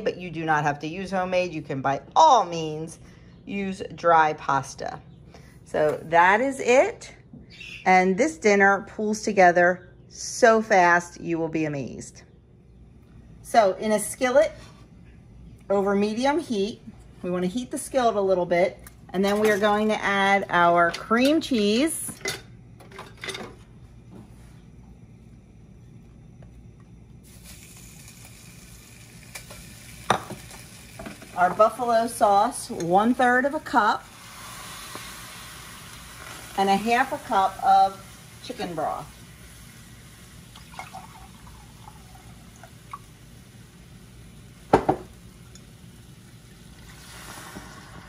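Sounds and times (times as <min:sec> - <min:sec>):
low steady hum: 0:00.0 - 0:48.0
cheese sizzling in a skillet: 0:27.2 - 0:48.0
broth pouring into skillet: 0:34.0 - 0:36.7, 0:39.0 - 0:44.5, 0:45.9 - 0:48.0.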